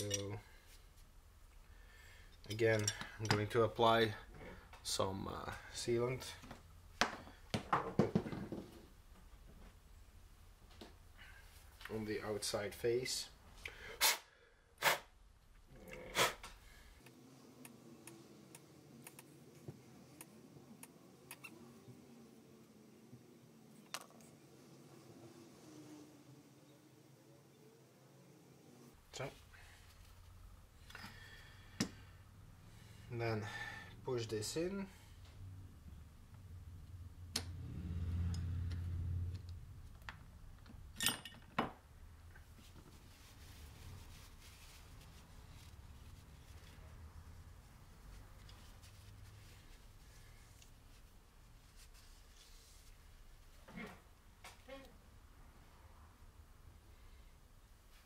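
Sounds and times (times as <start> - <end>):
light metal clinks: 2.4 - 3.5.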